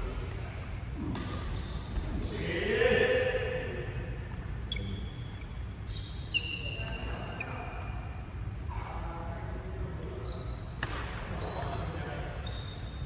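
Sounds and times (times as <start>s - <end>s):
low hum of sports hall: 0.0s - 13.0s
sports shoes squeaking: 1.2s - 2.4s, 4.6s - 8.4s, 10.0s - 13.0s.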